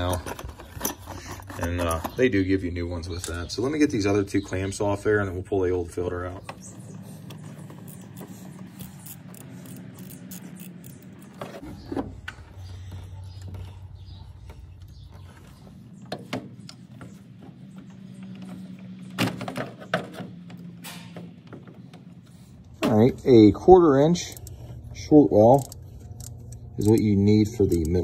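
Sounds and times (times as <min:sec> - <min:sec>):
metallic clicks of hand tools: 0:25.4 - 0:28.0.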